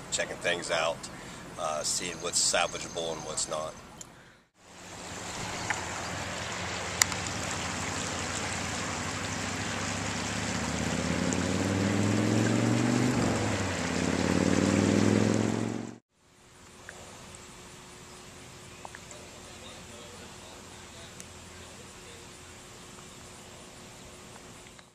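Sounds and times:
floodwater rushing: 4.6 - 16.0
vehicle engine rising in pitch: 4.8 - 16.0.

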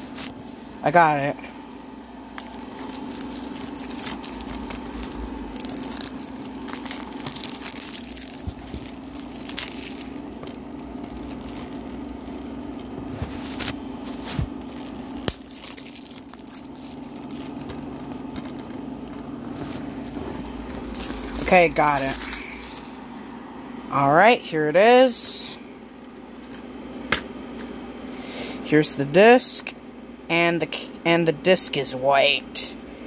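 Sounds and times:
shrink wrap crinkling: 0.0 - 23.4
steady low hum: 0.0 - 33.0.

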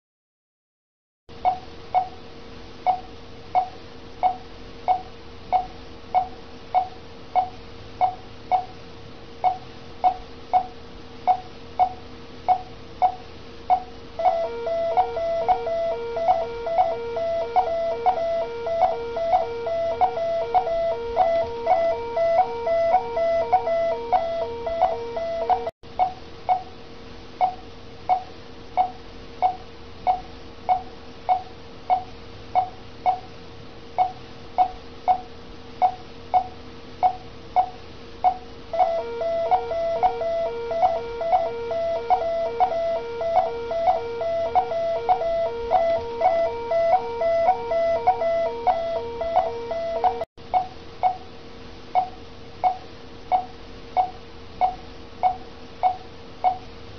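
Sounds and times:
patient monitor beeping: 11.3 - 26.6, 38.3 - 50.3
rapidly pulsing alarm tone: 14.2 - 25.7, 38.7 - 50.3.

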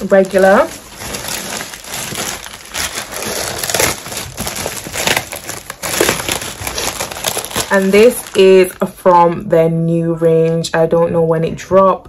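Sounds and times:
plastic and tissue paper crinkling: 0.0 - 9.2.

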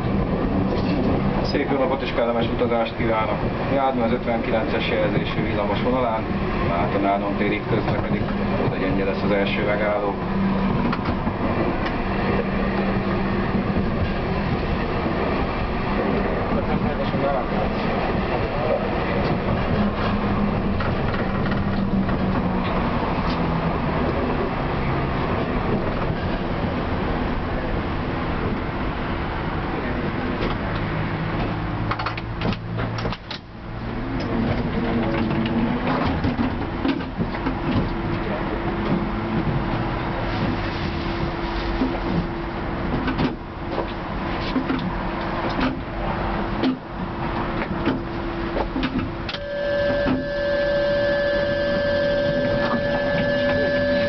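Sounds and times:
tram wheels rumbling: 0.0 - 54.0
steady hum: 46.4 - 54.0.

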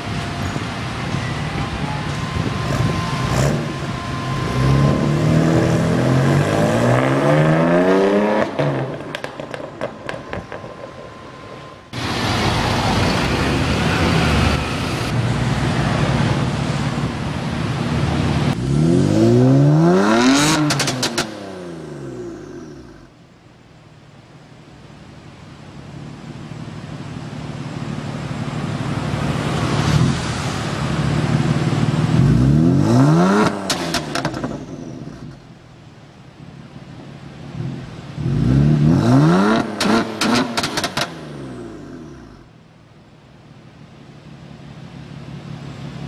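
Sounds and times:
car engine revving: 2.4 - 10.9, 17.8 - 23.2, 27.9 - 35.5, 37.5 - 42.5
exhaust crackles and pops: 8.6 - 11.2, 33.4 - 35.5, 39.6 - 41.2.

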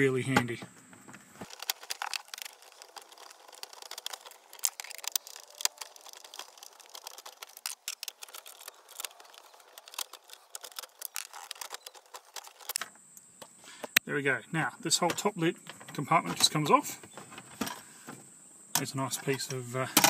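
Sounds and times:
light plastic rattles: 0.3 - 14.0.

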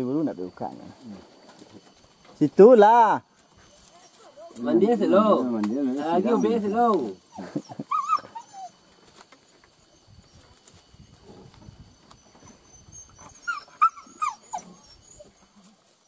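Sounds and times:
dog yelping: 6.0 - 8.9, 12.2 - 15.6.

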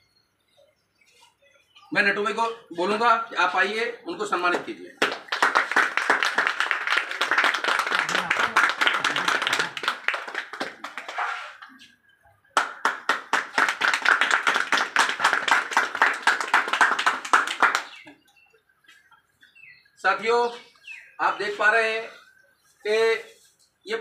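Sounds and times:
small group clapping: 4.5 - 11.9, 12.5 - 18.3.

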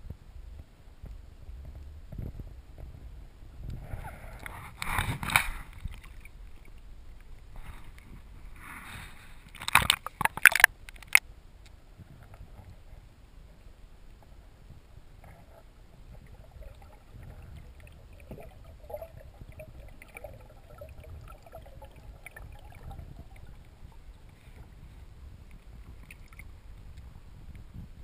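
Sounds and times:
small clicks: 9.5 - 11.8
muffled underwater rumble: 11.8 - 28.0
water gurgling: 14.9 - 28.0.

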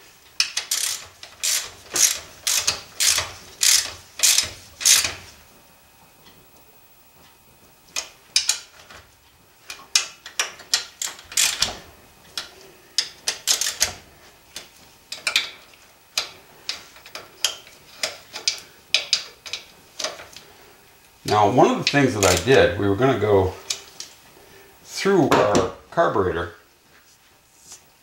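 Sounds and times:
socket ratchet clicking: 0.4 - 5.2, 9.7 - 11.8, 12.4 - 14.0.

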